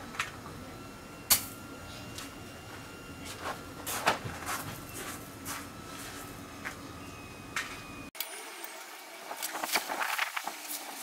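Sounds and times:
footsteps crunching on gravel: 3.3 - 6.8.

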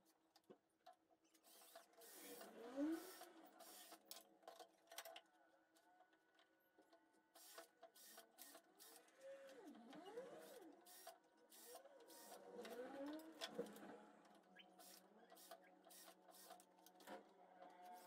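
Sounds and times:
cordless drill whirring: 1.4 - 4.1, 7.4 - 13.2.

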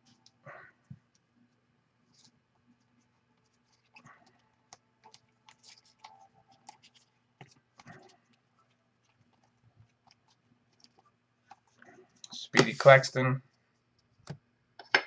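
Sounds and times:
trading cards clicking and scraping: 3.4 - 13.0.

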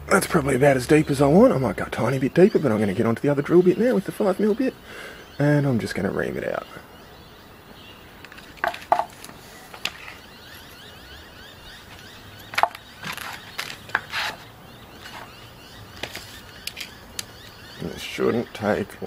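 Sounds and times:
small knocks: 8.2 - 10.2, 12.5 - 14.1.

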